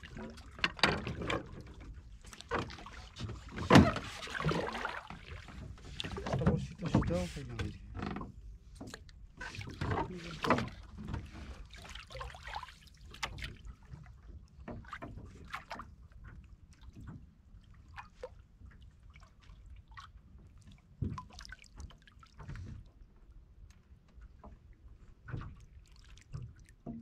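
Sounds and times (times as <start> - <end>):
knock with splash: 2.4 - 7.8, 8.8 - 15.8, 21.0 - 22.8
clicks and knocks of fishing line: 13.1 - 13.6.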